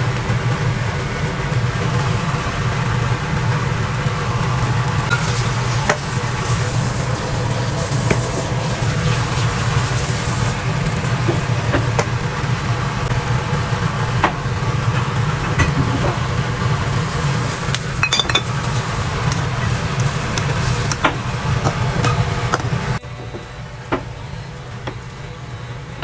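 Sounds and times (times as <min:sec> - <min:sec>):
broth boiling in a wok: 0:00.0 - 0:26.0
bottle and spatula clinking on pan: 0:18.0 - 0:18.6.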